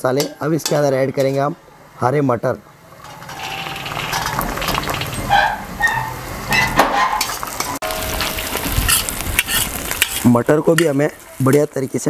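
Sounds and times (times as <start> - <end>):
spoon scraping and knocking pan: 3.0 - 5.6
food sizzling in pan: 3.0 - 6.4, 7.2 - 12.0.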